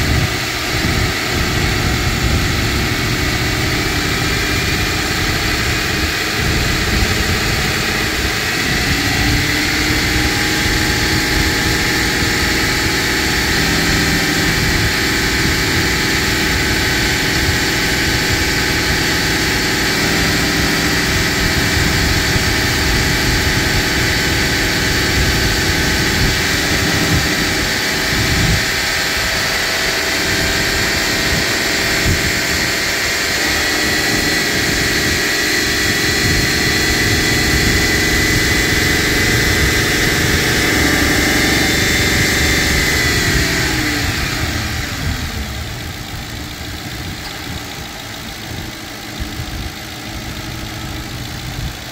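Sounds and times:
thin high whine: 0.0 - 51.9
vehicle engine idling: 0.0 - 51.9.

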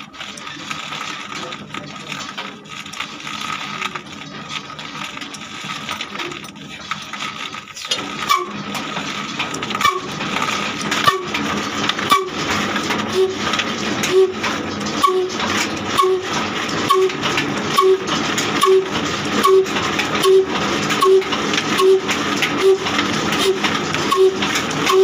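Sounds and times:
diesel engine being hand-cranked: 0.0 - 25.0
diesel engine firing slow beats: 7.8 - 25.0.

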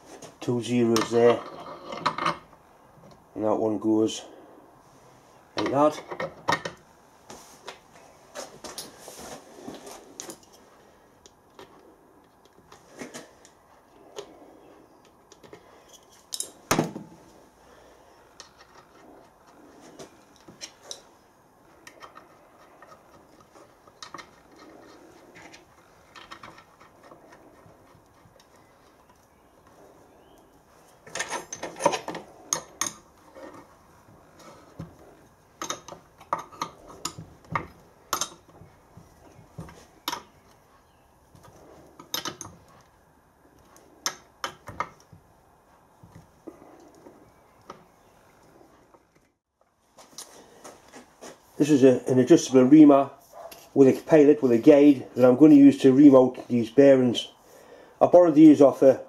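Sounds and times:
metal clinks and knocks: 31.0 - 33.7.

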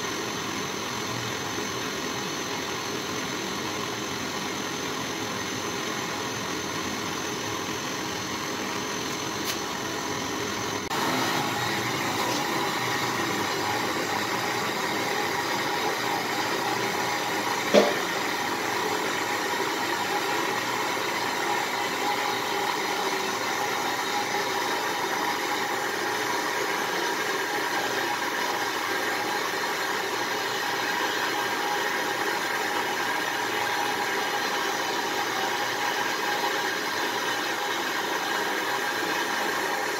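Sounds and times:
gas torch hissing: 10.7 - 16.6.

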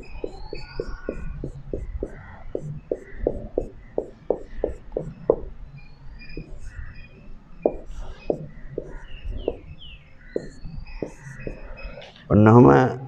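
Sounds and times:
marker tapping on whiteboard: 0.0 - 5.5, 6.4 - 6.6, 7.6 - 9.7, 10.4 - 11.6.

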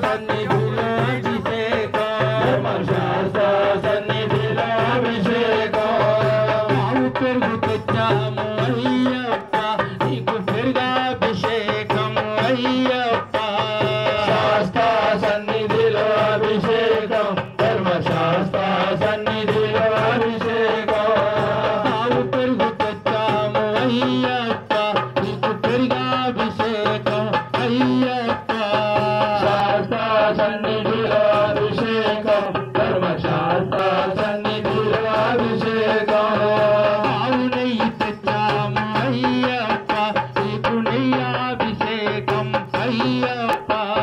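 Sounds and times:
person singing devotional song: 0.0 - 44.0
steady drum rhythm: 0.0 - 44.0.

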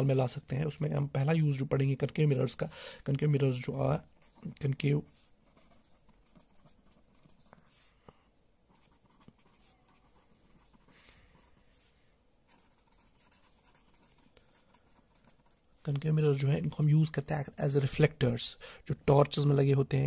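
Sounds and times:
pen scratching on paper: 5.0 - 8.0, 8.7 - 15.7.

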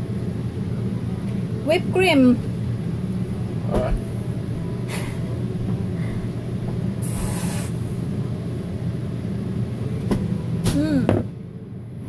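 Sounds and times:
steady low hum: 0.0 - 12.0
aerosol can hiss: 7.0 - 7.8.

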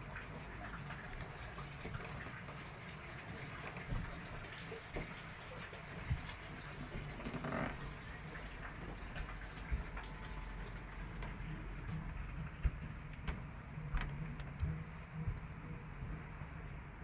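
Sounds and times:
steady low hum: 7.8 - 17.0.

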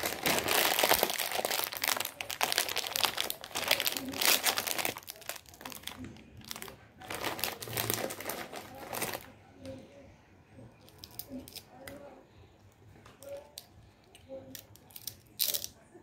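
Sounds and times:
foil snack bag crinkling: 0.0 - 9.4.

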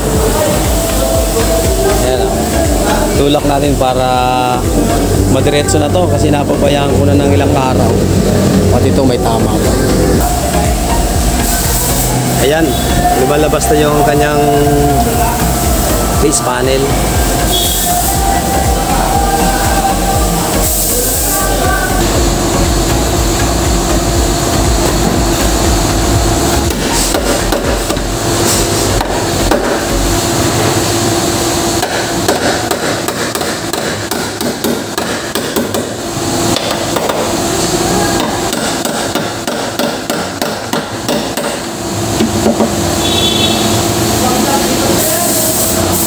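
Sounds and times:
hammer striking sheet metal: 26.6 - 30.0, 31.8 - 37.4, 38.1 - 42.8.

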